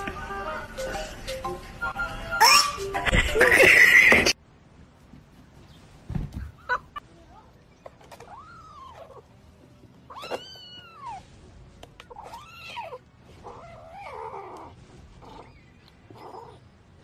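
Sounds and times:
kitten crying: 0:08.1 - 0:09.3, 0:10.1 - 0:11.2, 0:12.1 - 0:16.6.

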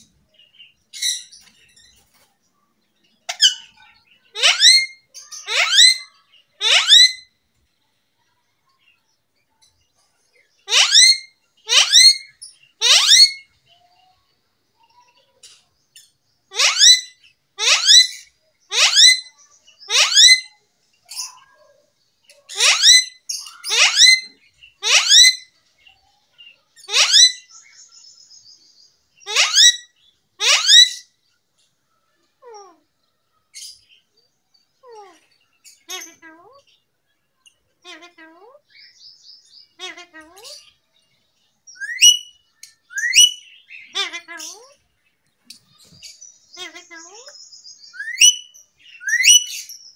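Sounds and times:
parrot calling loudly: 0:03.3 - 0:07.3, 0:10.6 - 0:13.4, 0:16.5 - 0:20.6, 0:22.5 - 0:25.5, 0:26.8 - 0:27.5, 0:29.2 - 0:31.1, 0:34.8 - 0:36.6, 0:37.8 - 0:38.6, 0:39.8 - 0:40.7, 0:41.8 - 0:44.8, 0:46.6 - 0:47.3, 0:47.9 - 0:49.7.

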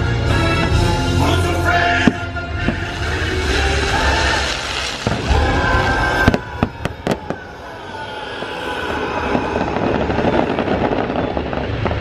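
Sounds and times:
fireworks bangs: 0:01.9 - 0:12.0
fireworks crackling pops: 0:02.0 - 0:07.6, 0:09.2 - 0:12.0.

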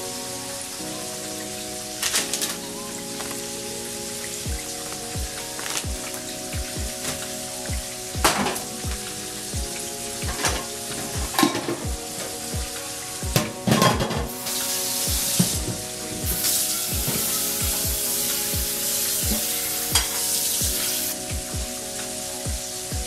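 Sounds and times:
background music with beat: 0:00.0 - 0:23.0
utensils and pans clattering: 0:02.0 - 0:03.4, 0:08.2 - 0:08.8, 0:10.2 - 0:12.5, 0:13.3 - 0:18.3, 0:19.1 - 0:21.2
food sizzling in a skillet: 0:14.3 - 0:22.9.

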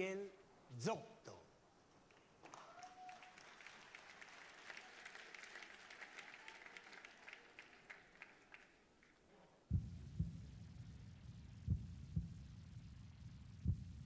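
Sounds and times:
faint audience applause: 0:02.1 - 0:09.2.

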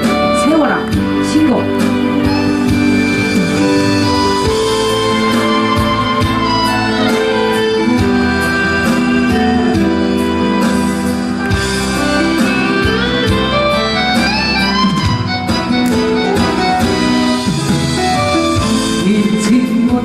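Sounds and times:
instrumental backing music: 0:00.0 - 0:20.0.

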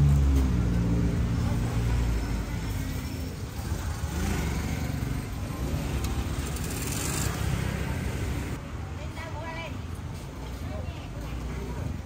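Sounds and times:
motorbike engines passing: 0:00.0 - 0:08.6
car engines passing: 0:00.0 - 0:08.7.

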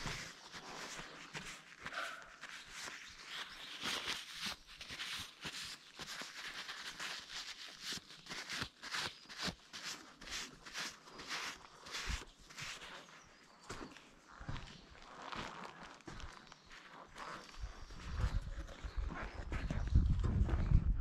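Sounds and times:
paper tissue rustling: 0:00.0 - 0:13.3.

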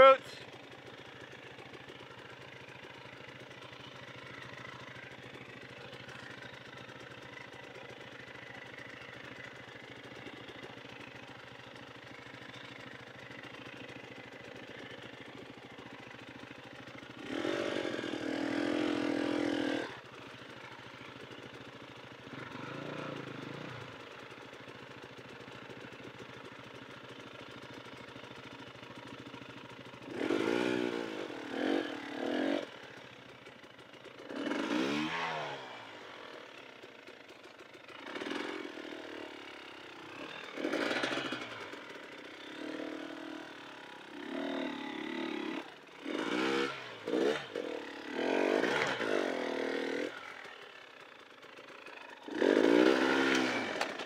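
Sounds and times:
dirt bike engine revving: 0:17.2 - 0:20.6, 0:22.2 - 0:24.0, 0:30.0 - 0:32.8, 0:34.2 - 0:36.6, 0:37.9 - 0:50.8, 0:51.8 - 0:54.0.

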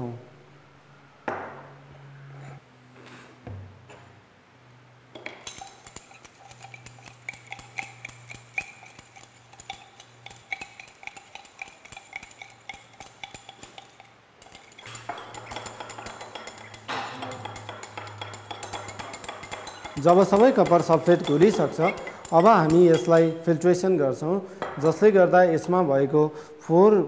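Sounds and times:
glass rod clinking in beaker: 0:05.2 - 0:23.5.

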